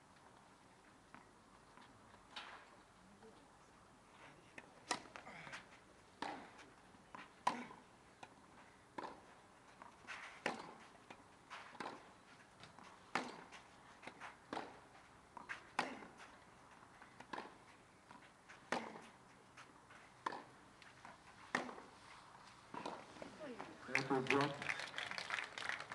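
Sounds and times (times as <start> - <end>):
tennis ball bouncing: 7.2 - 9.2, 9.8 - 21.9, 22.7 - 24.3
tennis ball struck by racket: 10.4 - 10.8, 13.1 - 13.5, 17.2 - 17.6, 20.2 - 20.5, 21.5 - 21.9.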